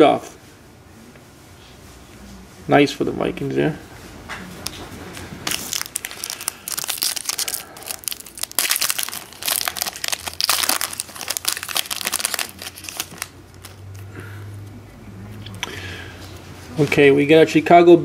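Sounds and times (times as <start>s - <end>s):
foil wrapper tearing and crinkling: 5.4s - 13.9s.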